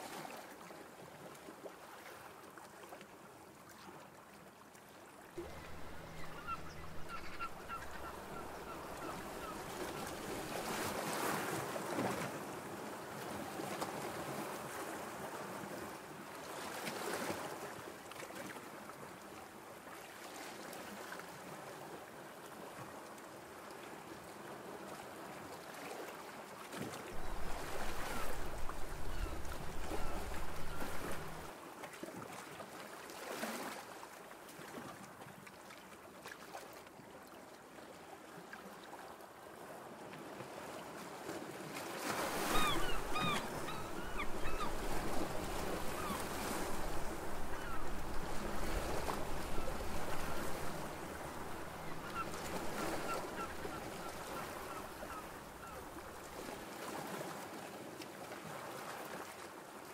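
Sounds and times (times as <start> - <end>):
wind rumbling on microphone: 27.2 - 31.5.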